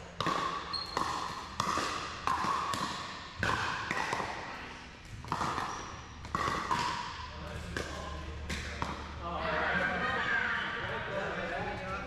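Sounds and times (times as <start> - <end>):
paddle hitting ball pop: 0.2 - 4.4, 5.2 - 7.1.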